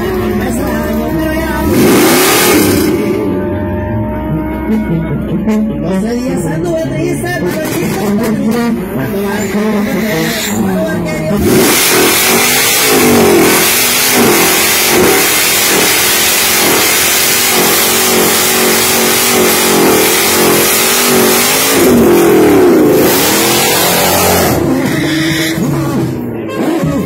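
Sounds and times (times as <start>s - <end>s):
car engine revving: 0.0s - 27.0s
tires spinning on pavement: 11.3s - 27.0s.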